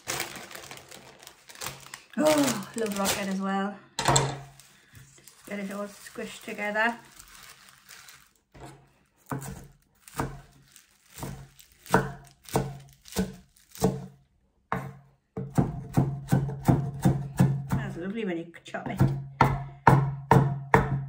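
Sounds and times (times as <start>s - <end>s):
knife chopping on wooden board: 8.6s - 10.5s, 11.1s - 14.1s, 14.7s - 17.9s, 18.9s - 21.0s.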